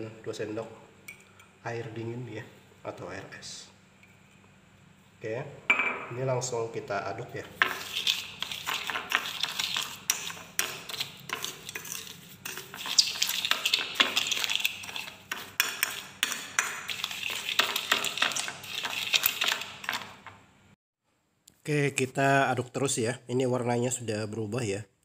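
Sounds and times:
metal spoon scraping glass plate: 0:07.6 - 0:20.1.

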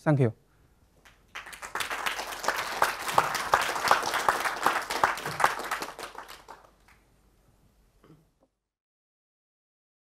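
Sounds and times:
audience applauding: 0:01.0 - 0:07.0.

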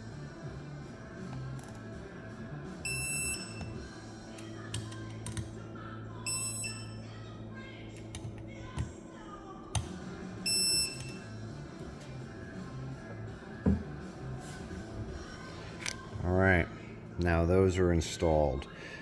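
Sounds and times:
torque wrench beeping: 0:02.8 - 0:03.8, 0:06.3 - 0:07.0, 0:10.4 - 0:11.2.

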